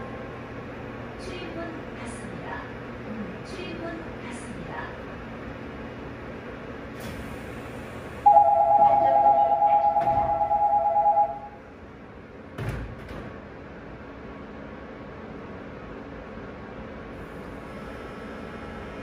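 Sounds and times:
two-note electronic door buzzer: 0:08.2 - 0:11.6.

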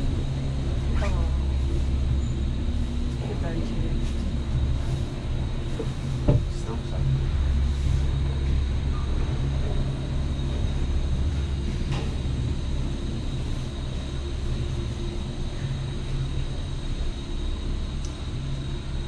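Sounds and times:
faint high whine: 0:00.0 - 0:19.0
gondola cabin rumble and hum: 0:00.0 - 0:19.0
faint click: 0:18.0 - 0:18.2.

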